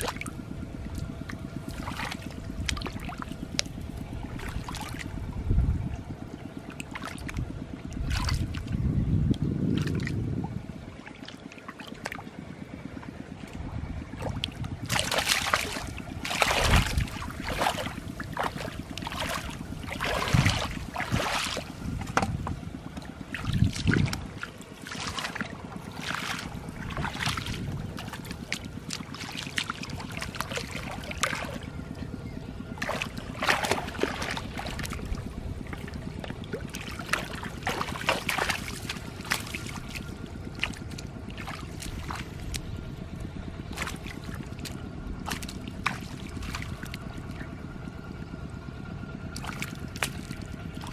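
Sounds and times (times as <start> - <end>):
hands splashing in muddy water: 8.0 - 8.7, 14.3 - 22.3, 23.3 - 31.8, 32.8 - 42.8, 43.6 - 47.4, 49.3 - 50.9.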